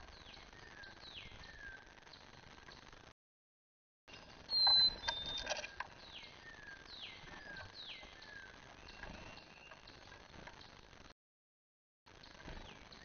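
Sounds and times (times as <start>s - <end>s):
sharp bird clicks: 4.5s - 6.0s
songbird whistling: 4.5s - 9.9s.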